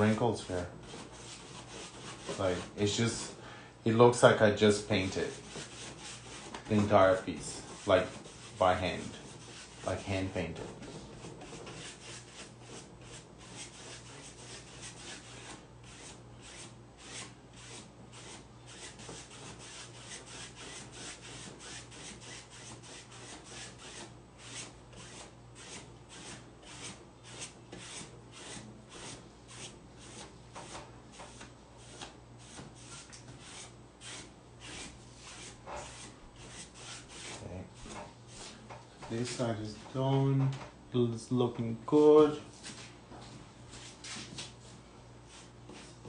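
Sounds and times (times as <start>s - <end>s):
paintbrush brushing on paper: 5.0s - 38.6s.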